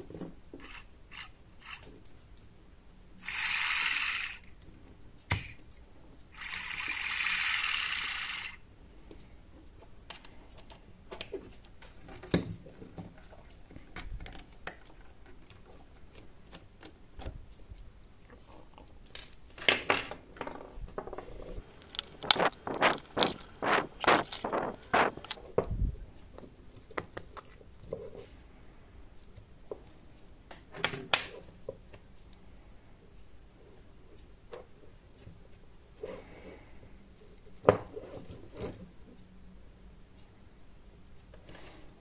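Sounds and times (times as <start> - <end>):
bursts of hiss: 21.6 - 25.4.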